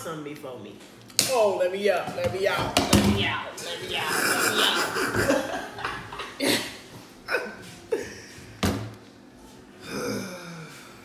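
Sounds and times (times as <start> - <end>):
wooden chairs knocking and thumping: 8.6 - 9.0.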